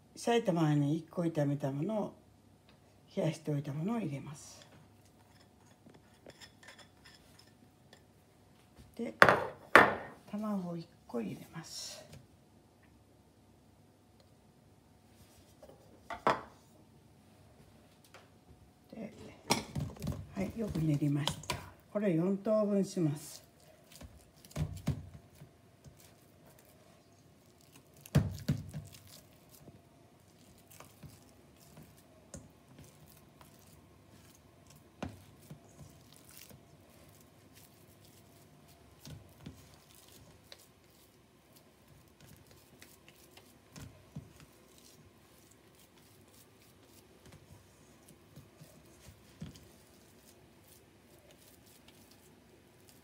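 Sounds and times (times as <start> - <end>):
squishing and patting meat by hand: 18.0 - 53.0.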